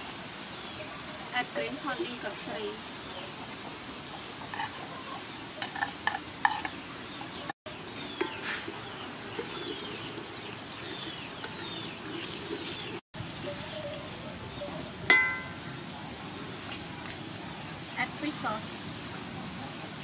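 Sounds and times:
birds chirping: 0.6s - 16.8s
pot of water boiling: 7.7s - 13.4s, 14.8s - 19.2s
wooden ladle stirring pot: 8.2s - 13.0s.

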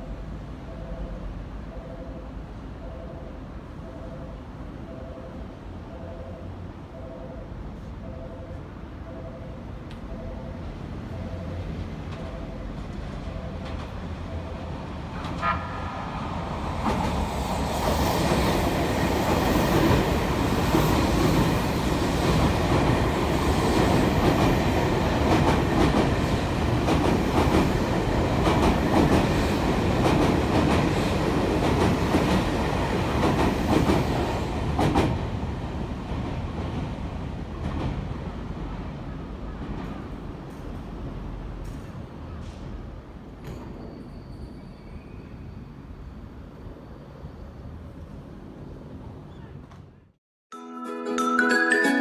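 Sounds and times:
electric train passing: 0.0s - 42.2s
brief high tone: 50.5s - 52.0s.

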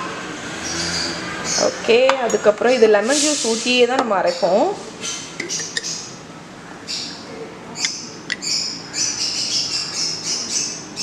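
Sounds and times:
bird chirping: 4.3s - 11.0s.

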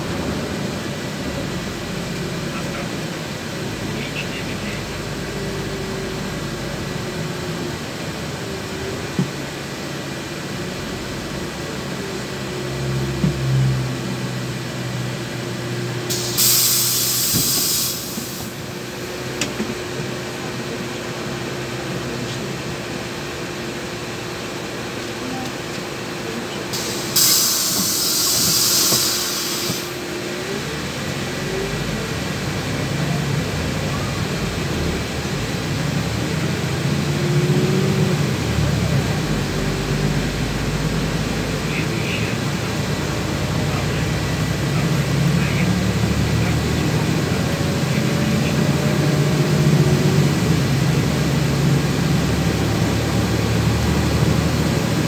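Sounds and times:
bus engine and road rumble: 0.0s - 55.0s
compressed air hissing: 16.1s - 18.6s, 26.7s - 30.0s.

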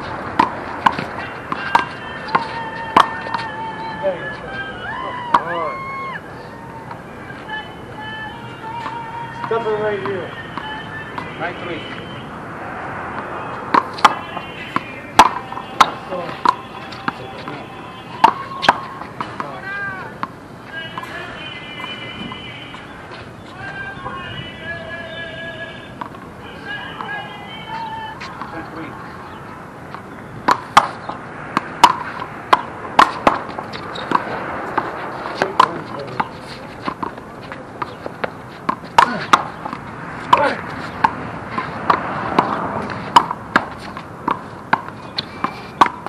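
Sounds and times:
ball bouncing on court: 0.3s - 3.5s, 13.2s - 17.6s, 18.2s - 20.3s, 30.4s - 46.0s
hand striking handball: 38.7s - 41.2s.

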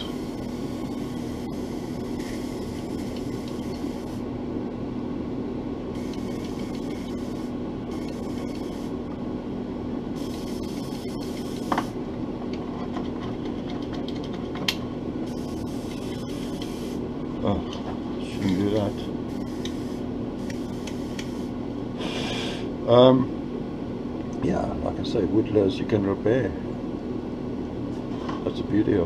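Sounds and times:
airbrush hissing air: 0.0s - 4.2s, 6.0s - 9.0s, 10.2s - 12.0s, 15.3s - 17.0s, 18.6s - 22.6s
motor hum: 0.0s - 21.9s.

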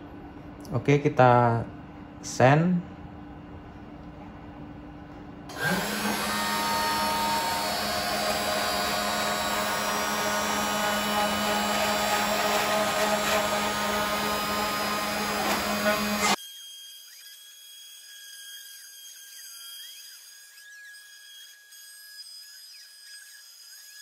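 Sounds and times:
router bit cutting wood: 5.5s - 24.0s
router spindle motor whine: 5.5s - 24.0s.

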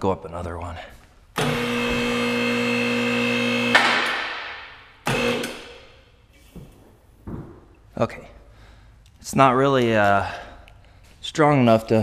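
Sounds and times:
electric driver running: 1.4s - 4.2s, 5.0s - 5.8s.

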